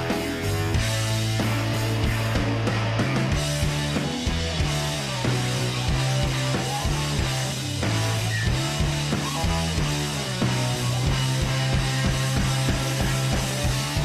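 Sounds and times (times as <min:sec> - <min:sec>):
rock music with guitar: 0:00.0 - 0:14.0.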